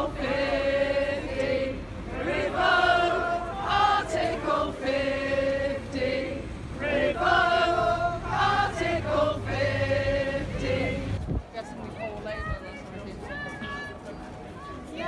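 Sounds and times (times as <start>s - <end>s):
group singing in chorus: 0.0s - 11.2s.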